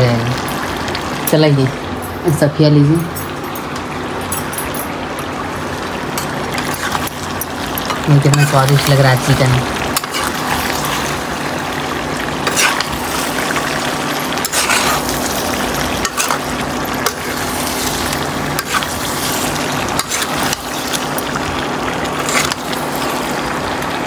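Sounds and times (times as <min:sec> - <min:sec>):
chicken sizzling in a pan: 0:05.4 - 0:24.0
metal spatula scraping pan: 0:12.4 - 0:13.0, 0:14.4 - 0:15.2.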